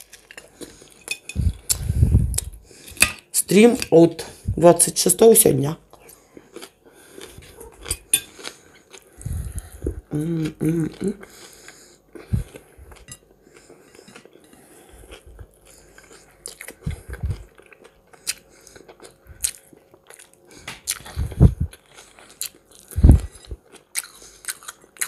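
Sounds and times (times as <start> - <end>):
heavy low thumps: 1.4 - 2.6, 16.8 - 17.4, 21.1 - 21.7, 23.0 - 23.4
chewing and biting: 5.9 - 10.0, 11.4 - 25.0.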